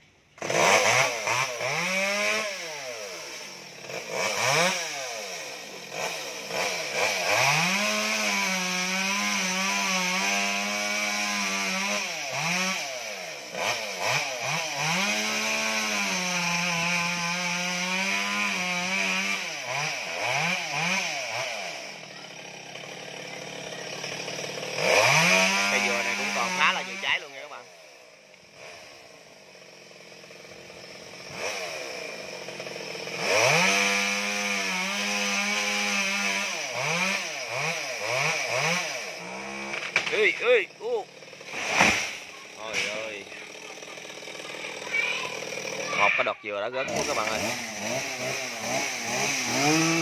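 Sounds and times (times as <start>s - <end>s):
chainsaw revving and cutting wood: 0.0s - 50.0s.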